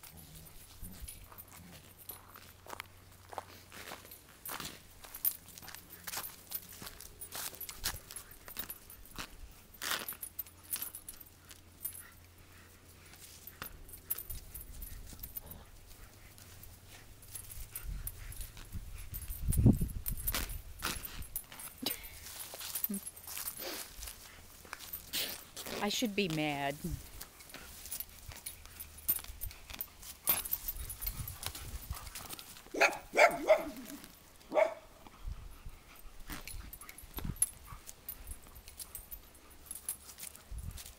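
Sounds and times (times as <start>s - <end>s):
dog play barks: 32.2s - 34.9s.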